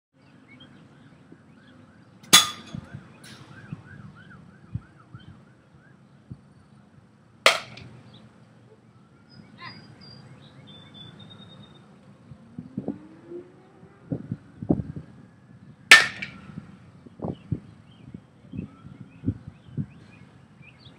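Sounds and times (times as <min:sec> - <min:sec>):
bat cracking ball: 0:07.5 - 0:08.0, 0:15.9 - 0:16.5.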